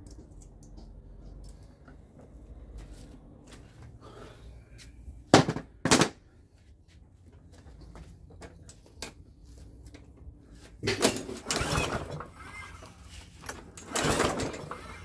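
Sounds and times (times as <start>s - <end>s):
lawnmower engine pull-start turning over: 11.0s - 15.0s.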